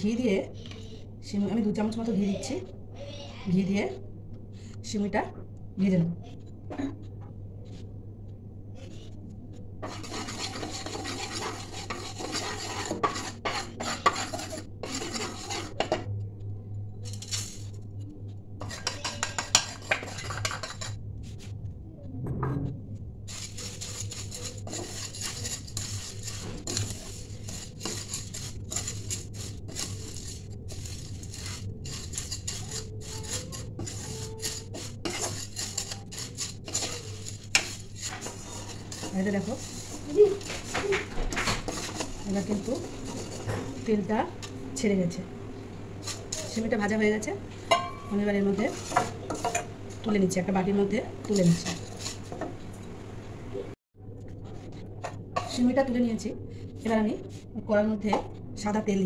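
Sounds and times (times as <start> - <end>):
spatula scraping metal pan: 9.8 - 16.1, 17.0 - 17.8, 18.6 - 21.0, 23.3 - 44.8, 46.0 - 52.9
vermicelli frying hiss: 23.3 - 45.2.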